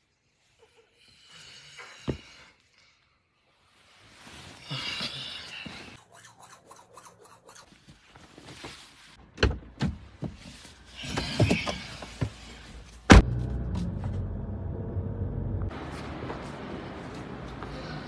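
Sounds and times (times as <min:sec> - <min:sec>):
toothbrush scrubbing teeth: 0:06.0 - 0:07.8.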